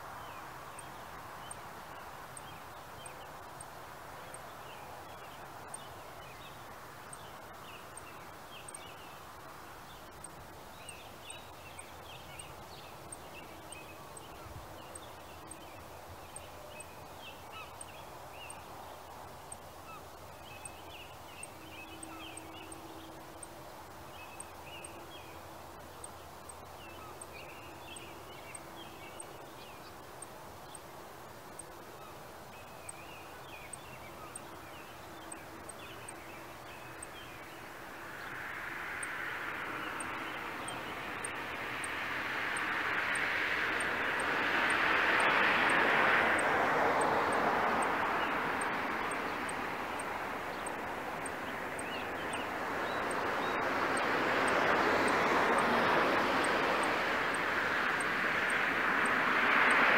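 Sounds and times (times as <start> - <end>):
distant city hum: 34.1 - 59.9.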